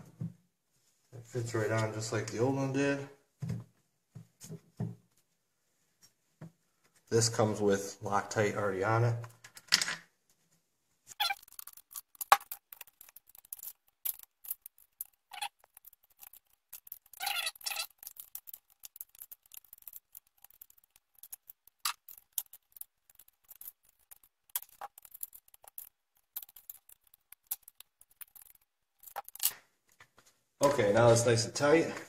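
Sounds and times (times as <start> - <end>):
metallic clicks and scrapes of screw: 11.1 - 29.6.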